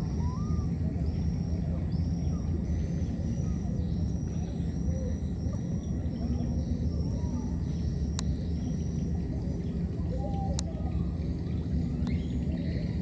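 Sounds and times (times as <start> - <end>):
faint high steady tone: 0.0 - 13.0.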